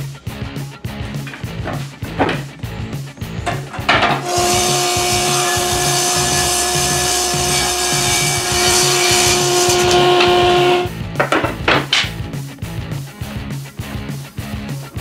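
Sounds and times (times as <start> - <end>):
background music with a beat: 0.0 - 3.9, 8.1 - 15.0
table saw cutting wood: 3.5 - 10.9.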